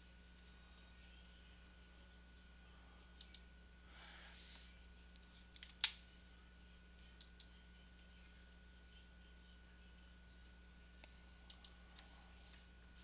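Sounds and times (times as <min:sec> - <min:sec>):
faint electrical hum: 0:00.0 - 0:13.0
mouse clicks: 0:03.2 - 0:03.5.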